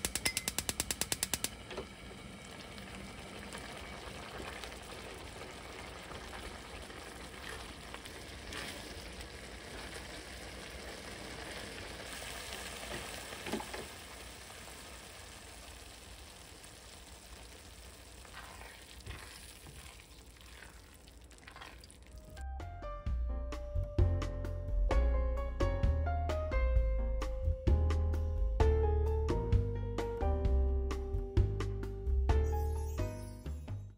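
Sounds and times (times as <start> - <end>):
sauce bubbling and sizzling in wok: 0.1 - 22.4
spatula stirring: 18.2 - 22.1.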